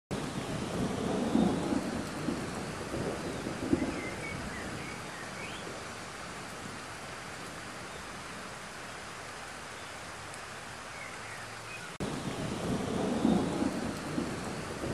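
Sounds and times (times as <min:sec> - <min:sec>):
low thunder rumbling: 0:00.1 - 0:07.8, 0:12.0 - 0:14.9
rain pattering on water: 0:00.1 - 0:14.9.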